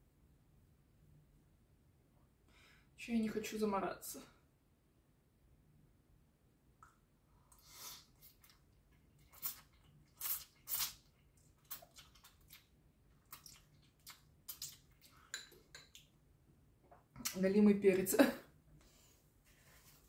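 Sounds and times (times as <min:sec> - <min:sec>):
wet chewing and mouth sounds: 0:07.4 - 0:16.2.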